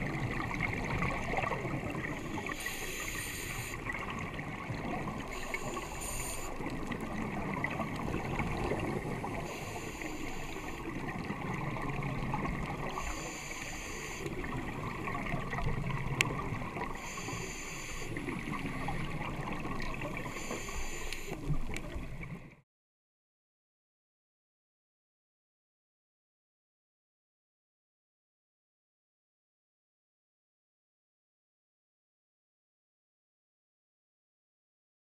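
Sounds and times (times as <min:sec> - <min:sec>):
exhaled bubbles rumbling: 0:00.0 - 0:02.9, 0:03.7 - 0:09.6, 0:10.8 - 0:13.0, 0:14.3 - 0:17.1, 0:18.2 - 0:20.4
muffled underwater noise: 0:00.0 - 0:22.6
scuba regulator inhalation hiss: 0:02.2 - 0:03.9, 0:05.3 - 0:06.7, 0:09.4 - 0:10.9, 0:12.9 - 0:14.4, 0:17.0 - 0:18.6, 0:20.2 - 0:21.5.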